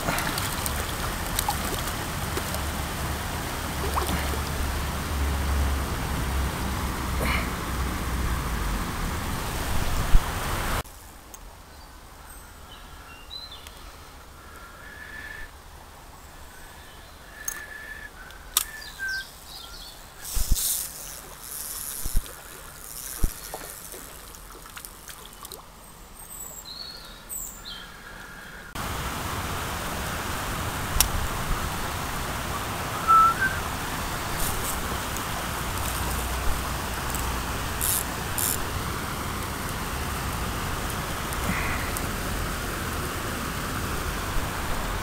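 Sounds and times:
water pouring over a weir: 0.0s - 6.3s, 20.2s - 25.7s
river water rushing: 0.0s - 10.8s, 18.4s - 26.2s, 28.8s - 45.0s
small birds chirping: 11.7s - 15.5s, 16.1s - 28.8s.

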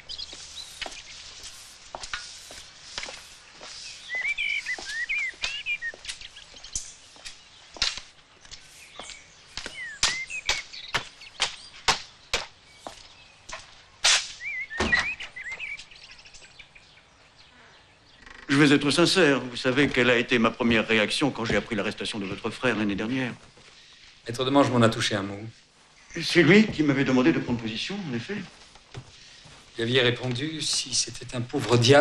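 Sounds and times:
footsteps on cobblestones: 0.0s - 14.0s, 19.5s - 23.8s, 25.5s - 32.0s
walking cane tapping: 0.0s - 14.0s, 19.7s - 23.8s, 28.4s - 32.0s
birds chirping: 0.0s - 32.0s.

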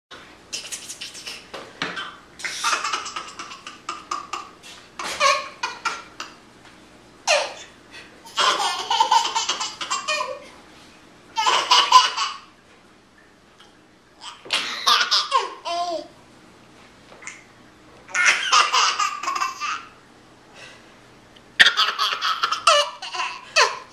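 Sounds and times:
toddler laughing: 2.0s - 6.4s, 7.3s - 7.7s, 8.3s - 10.6s, 11.4s - 12.5s, 14.2s - 16.1s, 18.1s - 19.9s, 21.6s - 23.9s.

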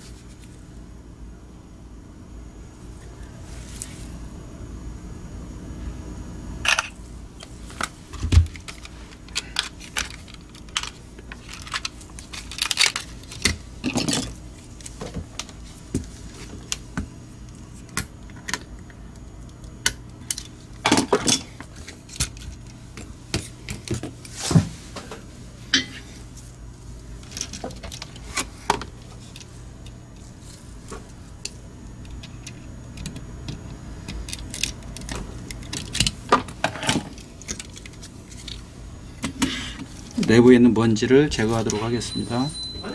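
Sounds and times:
plastic parts clicking and snapping: 7.8s - 14.3s, 31.4s - 38.6s.

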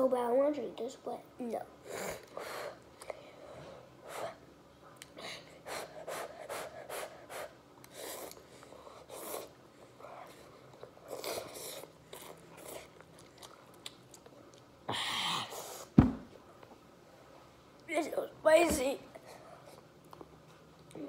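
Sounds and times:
person slurping and chewing noodles: 10.2s - 14.7s.

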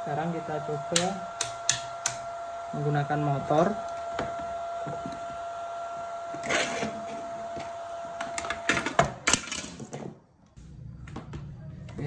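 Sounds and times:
inverter drive whine: 0.0s - 9.4s.

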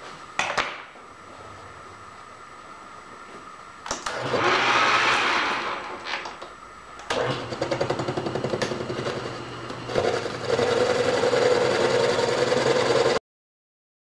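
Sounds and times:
metal lathe rattling and humming: 7.2s - 13.2s.

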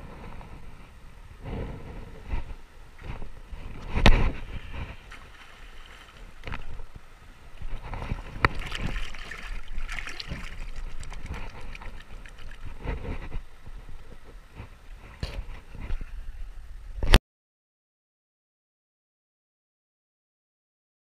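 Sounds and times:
water splashing around wading person: 3.1s - 14.7s.

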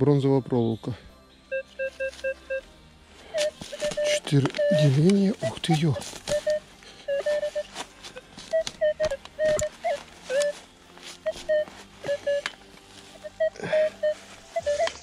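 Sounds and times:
metal detector beeps: 1.5s - 2.6s, 3.3s - 7.7s, 8.5s - 10.6s, 11.2s - 12.6s, 13.2s - 15.0s.

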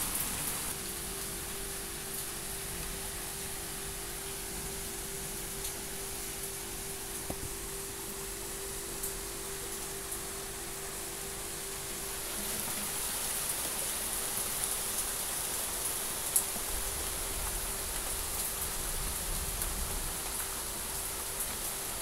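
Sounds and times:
steady rain hiss: 0.0s - 22.0s.

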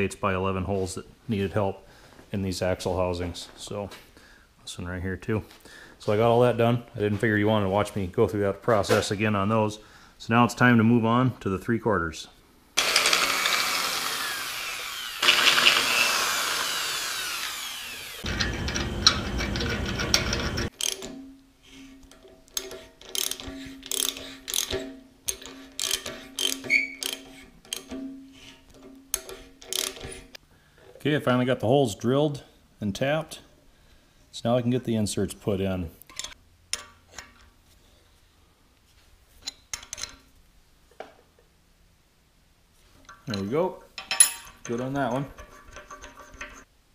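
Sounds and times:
ratchet clicking: 15.1s - 21.1s, 22.5s - 28.0s, 29.1s - 30.2s.

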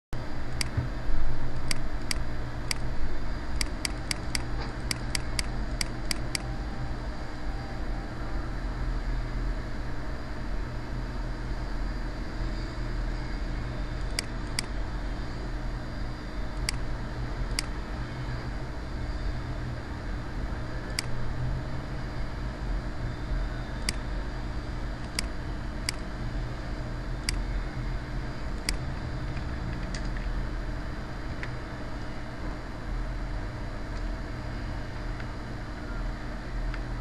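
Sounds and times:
low hum and hiss: 0.2s - 37.0s
computer mouse clicks: 3.6s - 6.5s, 14.0s - 14.7s, 23.8s - 24.0s, 25.0s - 26.0s.

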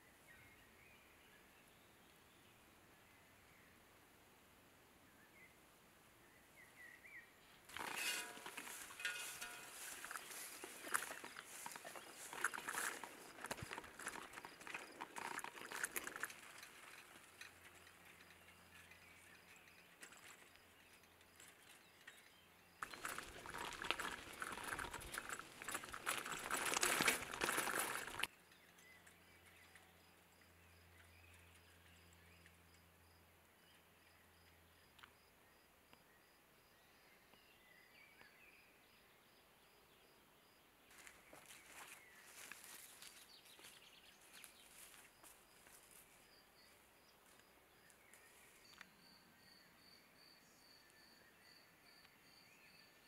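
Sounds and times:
loud crackling rustle: 7.7s - 18.2s, 22.8s - 28.3s.

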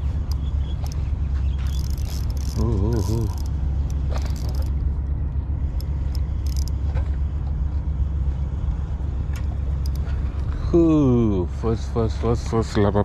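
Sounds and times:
low rumble: 0.0s - 12.8s
fishing reel cranking: 1.7s - 3.5s, 4.2s - 4.7s, 5.8s - 6.7s.

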